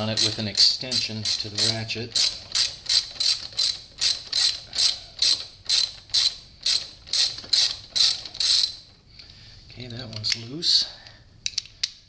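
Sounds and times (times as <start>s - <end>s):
socket ratchet ratcheting: 0.0s - 8.9s.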